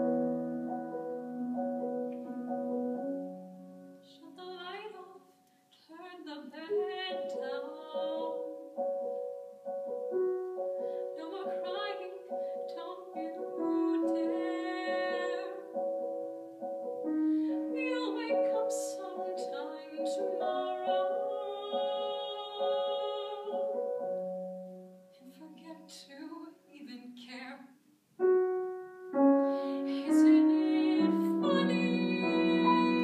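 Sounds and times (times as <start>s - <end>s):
piano chords: 0.0s - 5.2s, 6.4s - 26.2s, 28.2s - 33.0s
young woman singing with vibrato: 4.0s - 8.8s, 11.1s - 15.8s, 17.5s - 24.0s, 25.2s - 27.7s, 29.6s - 33.0s.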